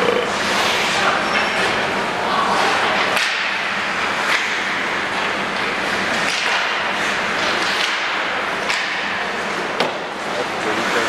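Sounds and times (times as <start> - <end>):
skate blades scraping ice: 0.4 - 1.7
hockey sticks clacking: 0.6 - 1.8, 2.6 - 11.0.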